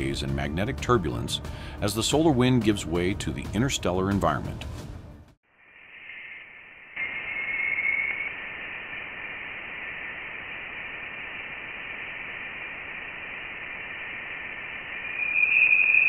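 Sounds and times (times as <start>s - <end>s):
steady hiss: 5.5s - 16.0s
thin high tones: 14.4s - 16.0s.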